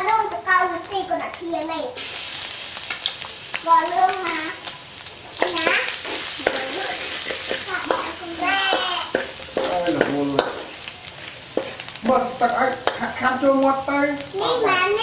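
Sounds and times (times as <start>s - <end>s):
garlic sizzling in oil: 0.0s - 15.0s
metal spatula scraping wok: 5.4s - 12.0s.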